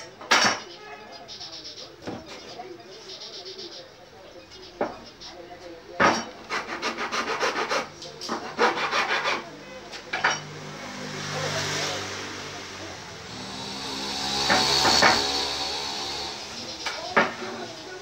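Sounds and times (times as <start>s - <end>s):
hand tool scraping wood: 6.4s - 9.5s, 13.3s - 16.4s
hand sanding wood: 6.5s - 9.4s.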